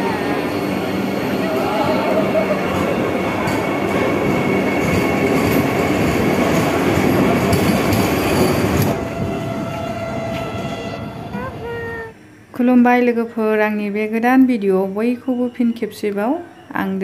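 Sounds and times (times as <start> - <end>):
train wheels rumbling: 0.0 - 12.1.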